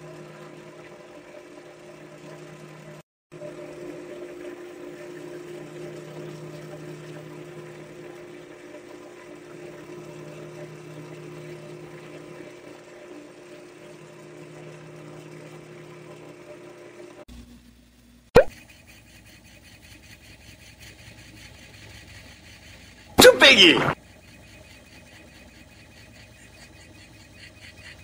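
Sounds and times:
wood lathe motor hum: 0.0s - 17.8s, 18.6s - 28.0s
sandpaper on spinning wood: 18.5s - 23.2s, 24.0s - 28.0s.

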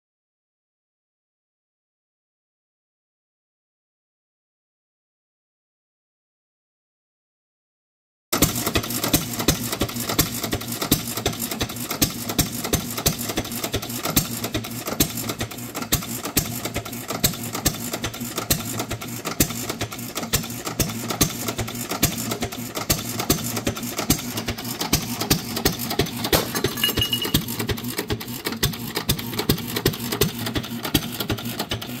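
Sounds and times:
mechanical clatter: 8.4s - 32.0s.

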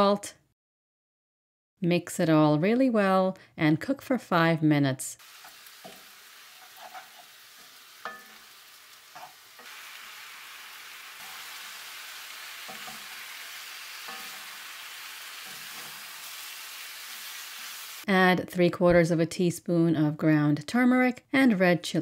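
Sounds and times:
meat sizzling in oil: 5.2s - 18.1s
wooden spoon scraping pot: 6.6s - 7.4s, 9.1s - 9.8s.

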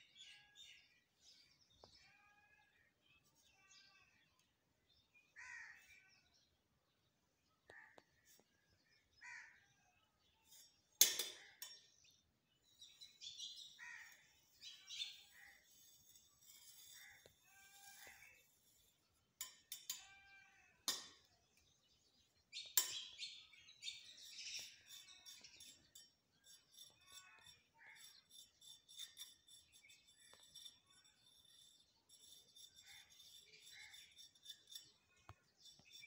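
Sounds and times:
trowel scraping plaster: 14.0s - 19.7s, 24.0s - 36.0s
bird chirps: 21.3s - 36.0s.

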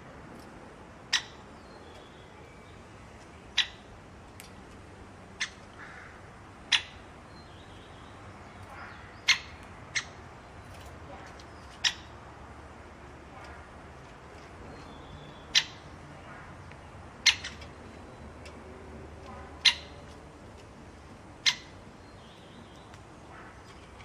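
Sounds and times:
woodpecker kik calls: 1.1s - 2.2s, 3.4s - 3.9s, 5.4s - 7.1s, 7.8s - 10.3s, 11.3s - 12.3s, 14.4s - 24.0s.

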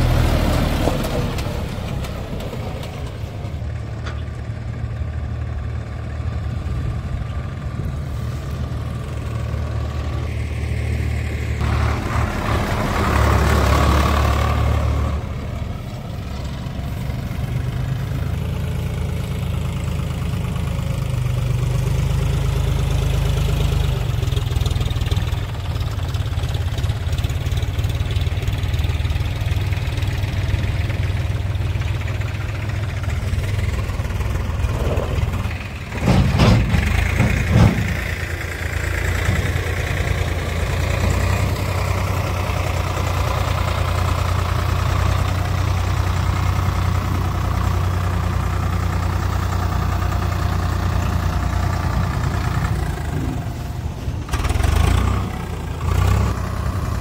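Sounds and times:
tractor diesel engines running: 0.0s - 57.0s
loud knocks: 35.9s - 38.1s.

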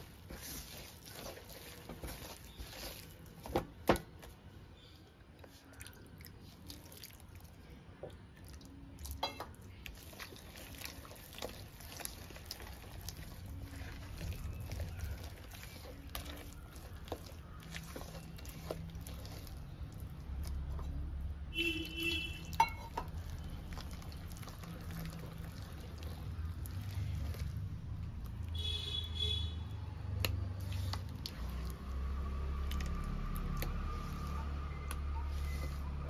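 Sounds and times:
soft wet squishing: 0.0s - 36.0s.

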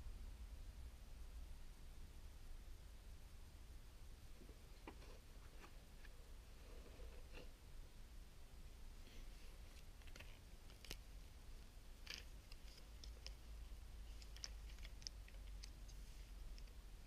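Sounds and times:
objects handled with clicks: 12.0s - 13.5s, 14.1s - 16.8s.

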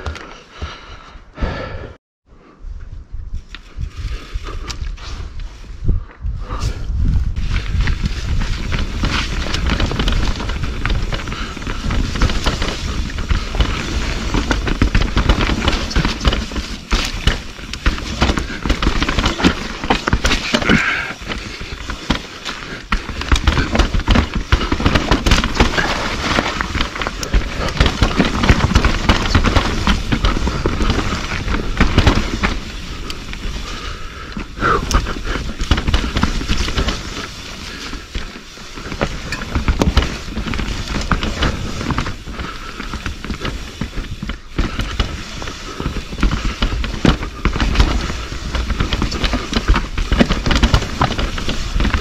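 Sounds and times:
wind rumble on microphone: 2.4s - 22.1s
bike rattling: 6.7s - 52.0s
bike tyres clattering over rocks: 7.4s - 52.0s.

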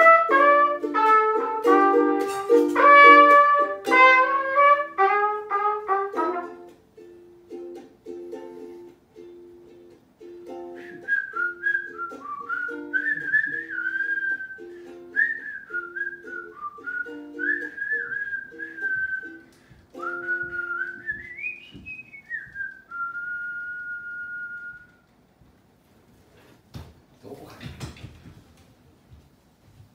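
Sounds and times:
strummed ukulele chords: 0.0s - 21.9s
person whistling a melody: 10.5s - 25.0s.

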